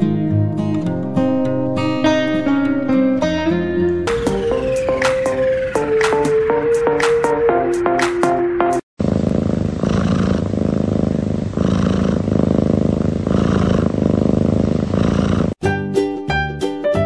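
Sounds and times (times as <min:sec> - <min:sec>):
cat purring loudly: 0:09.0 - 0:15.6.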